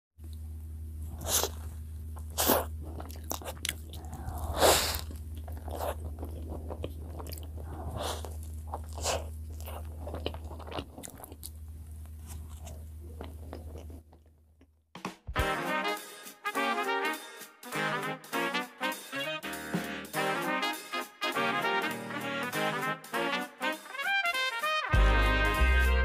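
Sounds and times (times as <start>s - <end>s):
person biting and chewing bread: 0.3s - 14.8s.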